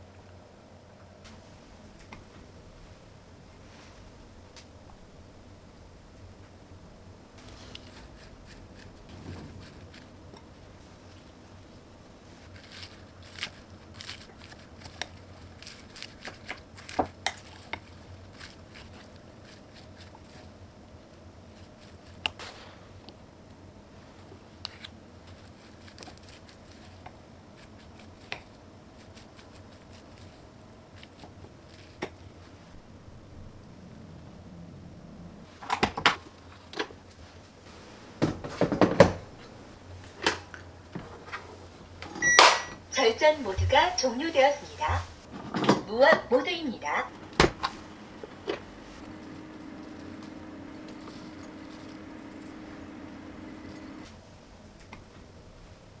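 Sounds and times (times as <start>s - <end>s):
lettuce leaves rustling: 11.1s - 20.6s.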